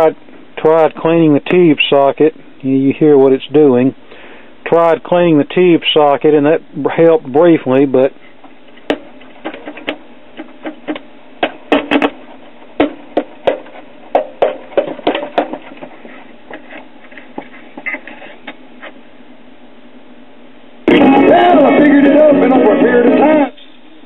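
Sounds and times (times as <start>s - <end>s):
speaker pops and crackles: 8.8s - 15.9s.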